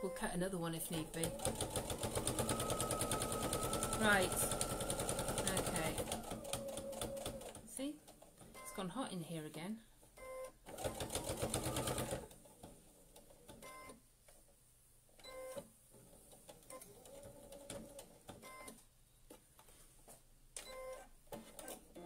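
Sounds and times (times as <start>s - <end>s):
sewing machine stitching: 1.0s - 7.7s, 10.7s - 13.6s.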